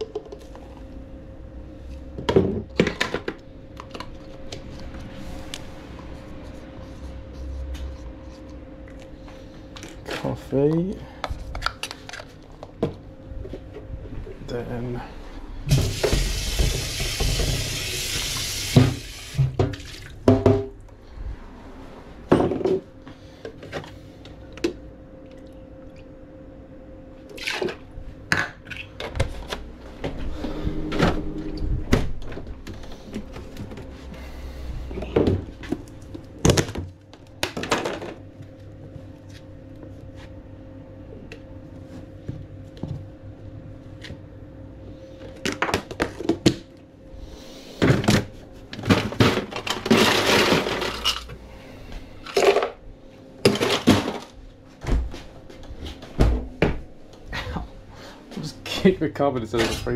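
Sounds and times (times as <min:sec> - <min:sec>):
steady low hum: 0:00.0 - 0:16.5, 0:19.4 - 0:59.9
tap water running into jug: 0:15.7 - 0:20.2.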